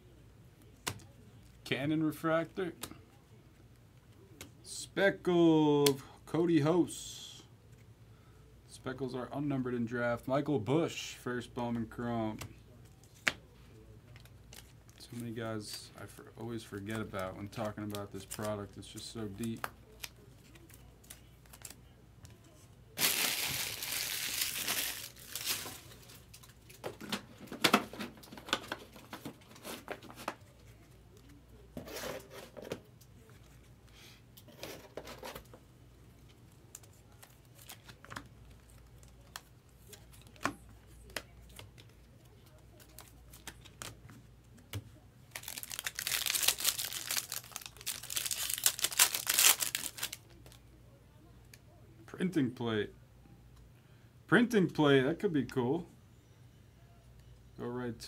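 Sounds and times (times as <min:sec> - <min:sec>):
foil wrapper crinkling and tearing: 0:23.0 - 0:26.8, 0:45.3 - 0:50.6.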